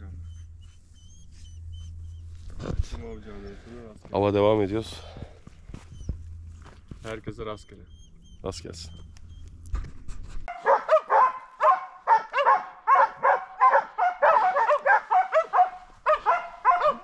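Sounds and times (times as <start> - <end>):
dogs barking: 10.5 - 17.0.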